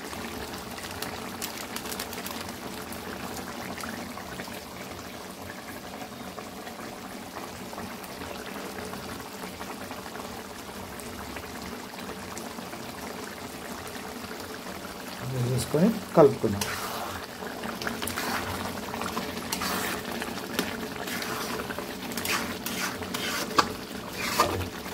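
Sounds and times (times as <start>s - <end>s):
curry bubbling in a pan: 0.0s - 24.9s.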